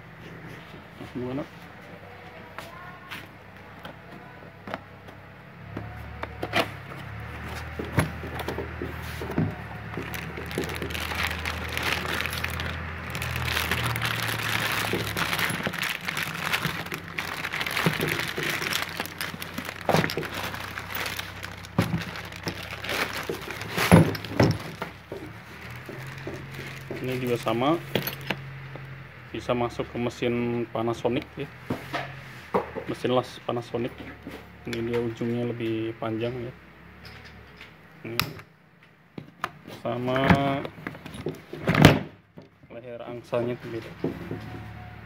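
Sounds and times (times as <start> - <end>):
plastic bag crinkling: 8.2 - 28.3.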